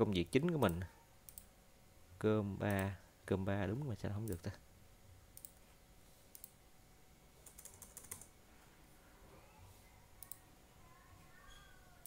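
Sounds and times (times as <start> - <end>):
computer keyboard keystrokes: 7.4 - 8.3.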